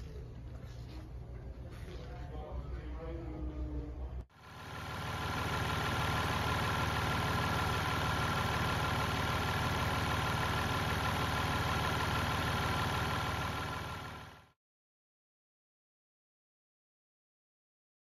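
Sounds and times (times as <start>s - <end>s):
diesel engine idling: 4.3s - 14.6s.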